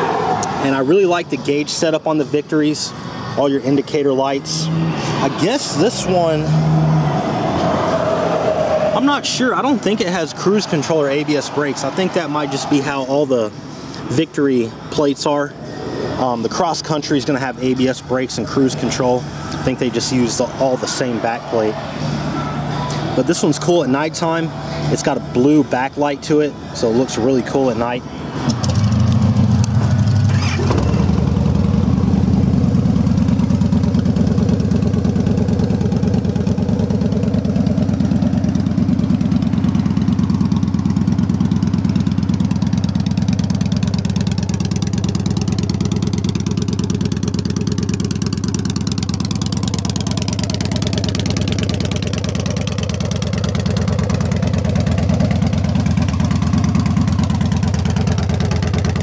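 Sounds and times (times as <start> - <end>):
motorcycle engine starting and idling: 28.4 - 59.0.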